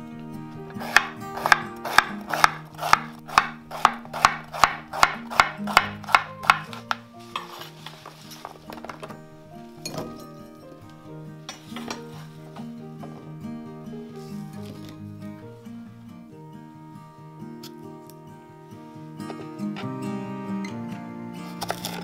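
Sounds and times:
knife chopping on wooden board: 0:00.8 - 0:06.9.

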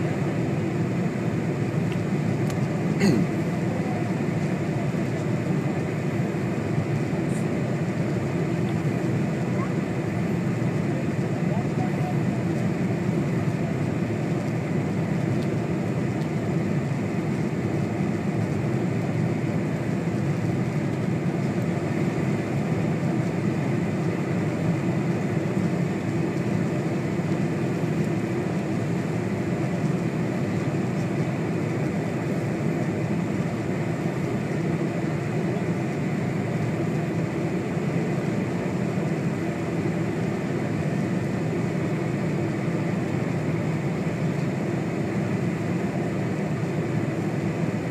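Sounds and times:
jet engine cabin rumble: 0:00.0 - 0:47.9.

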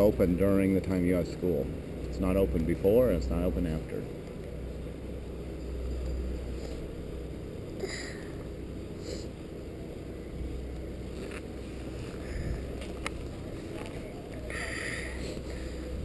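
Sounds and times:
wind rumble on microphone: 0:12.2 - 0:14.0.

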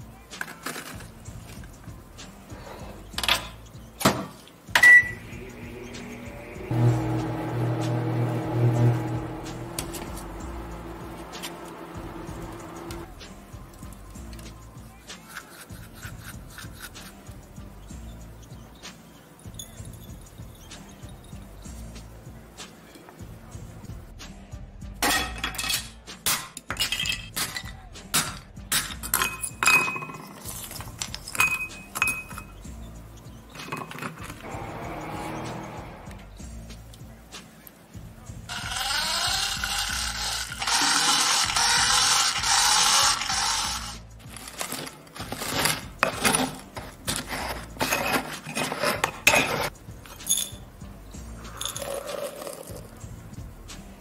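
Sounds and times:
faint background music: 0:00.0 - 0:54.0
pestle grinding in ceramic mortar: 0:44.3 - 0:49.7.

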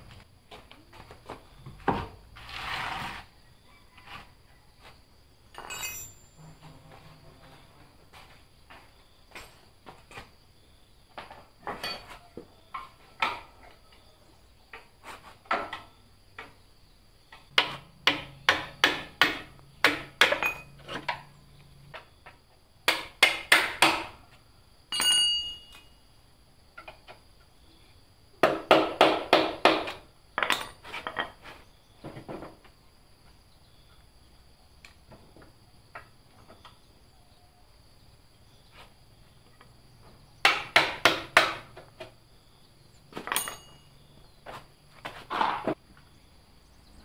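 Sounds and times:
squeaky scrape: 0:02.4 - 0:04.6, 0:06.4 - 0:07.8.

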